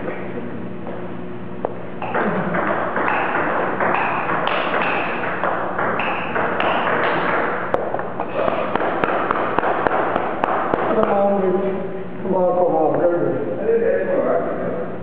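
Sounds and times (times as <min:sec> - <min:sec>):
table tennis ball clicking: 0:02.0 - 0:11.2.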